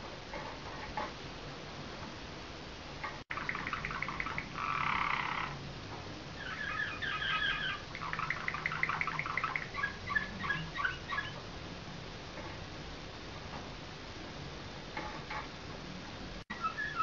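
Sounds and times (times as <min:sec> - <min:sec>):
canary singing trills: 0:03.3 - 0:05.6, 0:06.4 - 0:11.4, 0:16.5 - 0:17.0.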